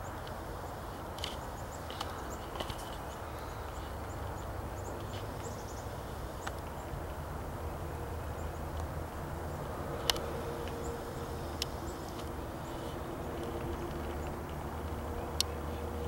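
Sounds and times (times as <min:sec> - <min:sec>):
small birds chirping: 0:00.0 - 0:16.0
steady low rumble: 0:00.4 - 0:16.0.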